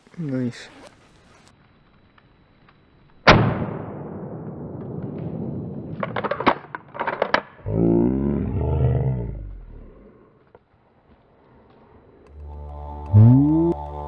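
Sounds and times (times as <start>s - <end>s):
sharp clicks and cracks: 0.0s - 3.8s, 4.7s - 7.7s, 10.4s - 14.0s
slowed-down shotgun blast: 3.2s - 6.6s
deep slowed-down voice: 7.6s - 10.4s, 12.3s - 14.0s.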